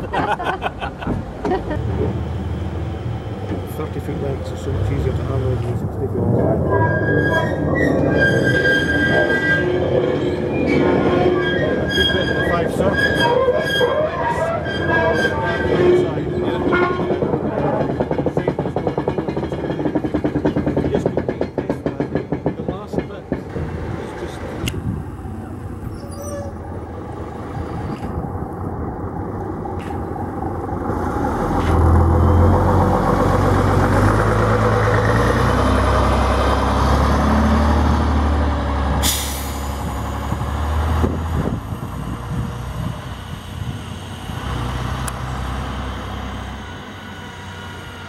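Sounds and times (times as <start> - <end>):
diesel bus engine rumble: 0.0 - 21.6, 22.6 - 48.0
air hiss from bus: 39.0 - 39.9.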